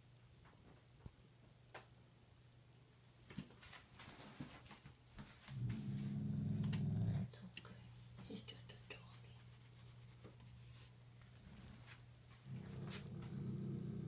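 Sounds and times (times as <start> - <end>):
low steady hum: 0.0 - 14.0
cat purring: 5.4 - 14.0
faint clicks: 6.5 - 14.0.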